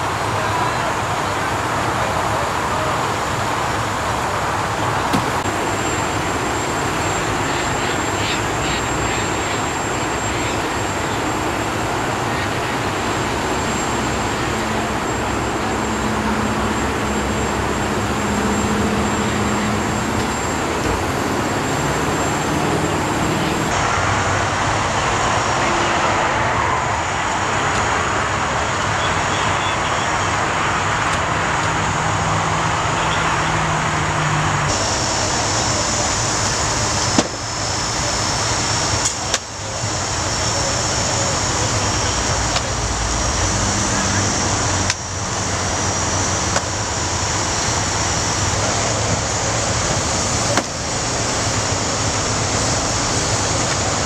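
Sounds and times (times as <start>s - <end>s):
highway traffic: 0.0s - 54.0s.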